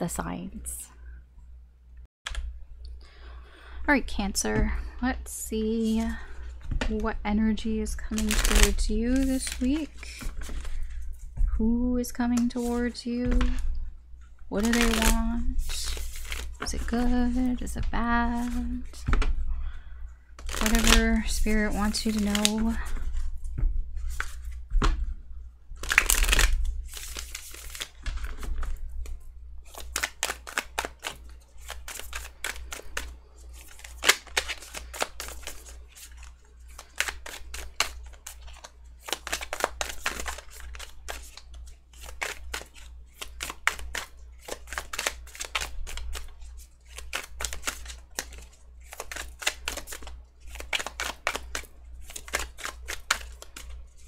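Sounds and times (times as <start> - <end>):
steady low hum: 0.0 - 54.0
cards being shuffled: 8.1 - 11.0, 14.5 - 19.3, 20.4 - 25.1, 25.8 - 54.0.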